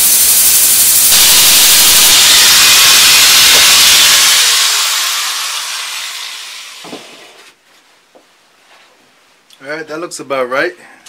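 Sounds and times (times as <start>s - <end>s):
angle grinder grinding metal: 0.0s - 7.3s
grinder spinning down: 0.0s - 7.4s.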